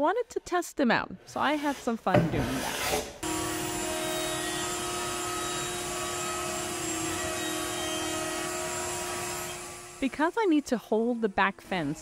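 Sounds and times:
router whining: 3.2s - 12.0s.

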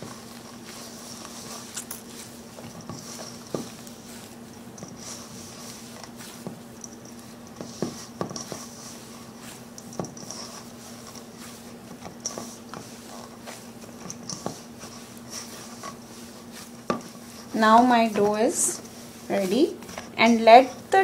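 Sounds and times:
dough kneaded in metal bowl: 0.0s - 21.0s.

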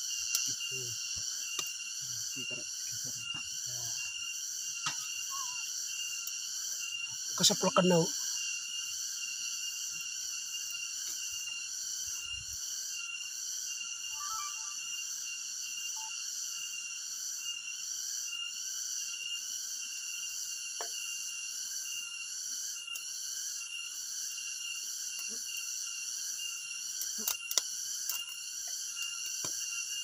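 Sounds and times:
shrill insect drone: 0.0s - 30.0s.

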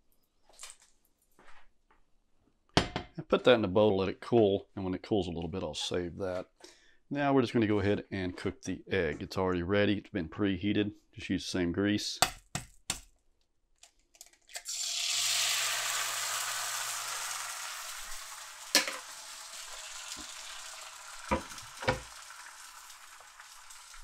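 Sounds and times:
grease popping: 14.1s - 24.0s
egg sizzling in grease: 14.6s - 24.0s.

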